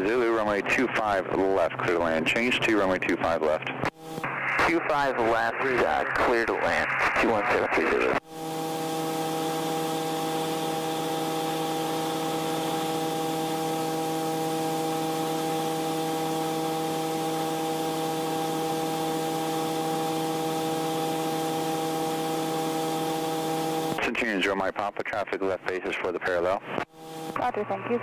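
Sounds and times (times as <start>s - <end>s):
propeller plane engine droning: 8.2s - 24.0s.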